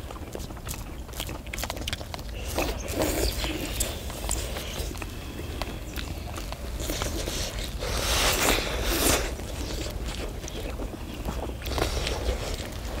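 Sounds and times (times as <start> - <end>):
chewing and skewer clicks: 0.0 - 13.0
blowing and slurping on hot food: 6.6 - 10.4.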